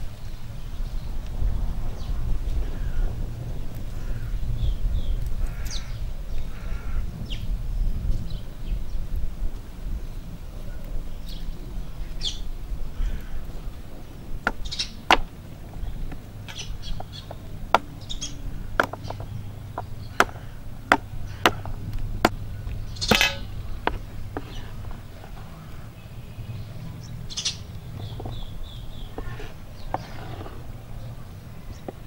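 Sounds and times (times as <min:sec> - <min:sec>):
birds chirping: 0:00.0 - 0:09.2, 0:09.8 - 0:32.0
knife chopping on wooden board: 0:14.5 - 0:15.3, 0:18.8 - 0:22.4.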